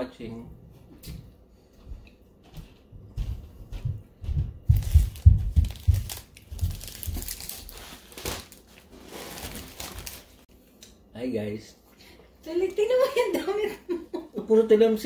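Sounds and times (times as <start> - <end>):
dull low thumps: 2.9 - 7.0.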